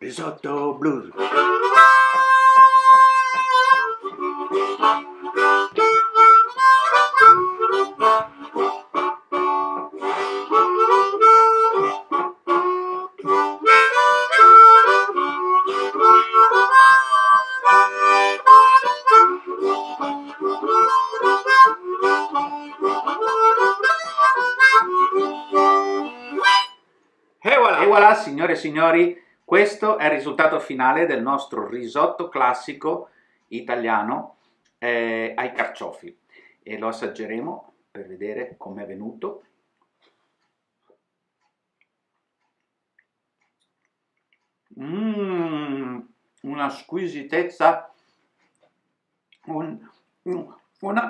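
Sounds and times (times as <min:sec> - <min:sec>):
harmonica playing blues: 0:00.0 - 0:26.9, 0:44.8 - 0:46.0.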